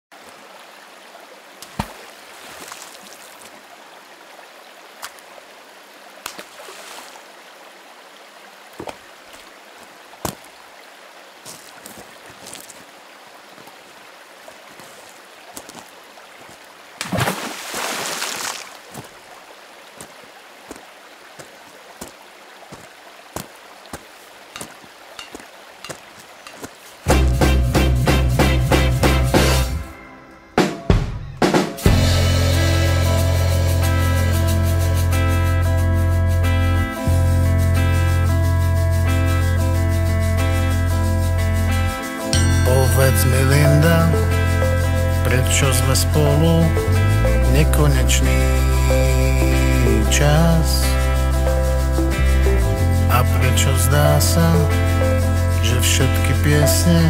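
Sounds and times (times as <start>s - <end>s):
water ticks and drips: 0.1s - 27.1s
stream water rushing: 0.1s - 30.5s, 36.4s - 57.0s.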